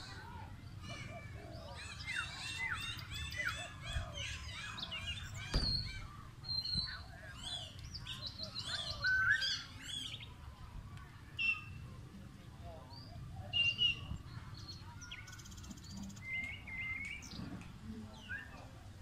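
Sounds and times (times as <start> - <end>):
small birds chirping: 0.0 - 19.0
sharp knock: 5.5 - 6.1.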